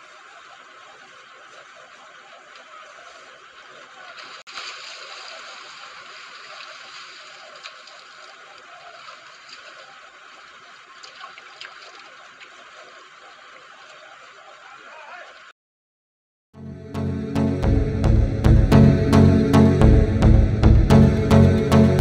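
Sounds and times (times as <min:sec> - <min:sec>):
water trickling and dripping: 0:04.3 - 0:14.4.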